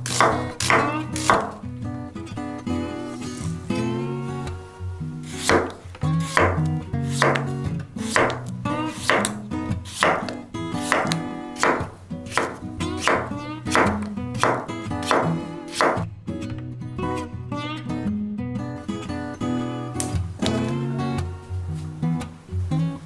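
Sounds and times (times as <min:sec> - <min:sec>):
knife chopping on wooden board: 0:00.0 - 0:01.6, 0:05.4 - 0:07.5, 0:08.1 - 0:16.0.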